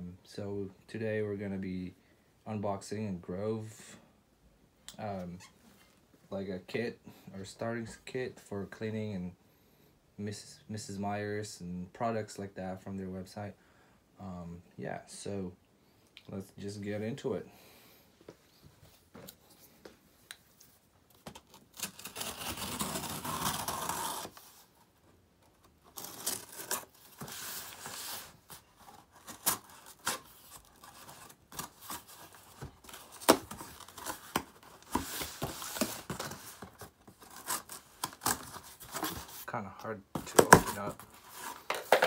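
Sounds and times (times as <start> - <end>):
rustling scrape of cardboard: 25.6 - 39.5.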